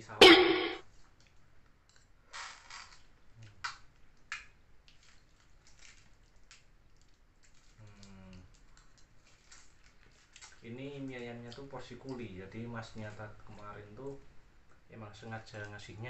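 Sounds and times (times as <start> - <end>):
food crackling and rustling: 4.8 - 7.8, 8.6 - 10.6.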